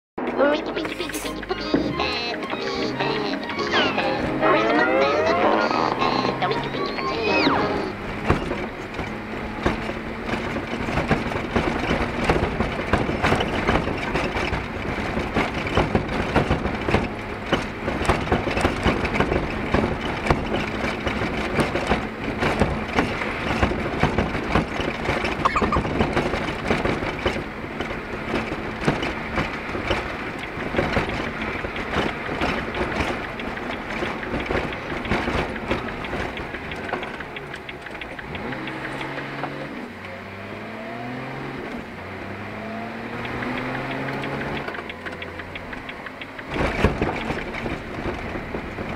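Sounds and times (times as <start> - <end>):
truck engine running: 0.2 - 48.9
truck cab knocking and rattling: 7.9 - 39.9, 42.8 - 48.9.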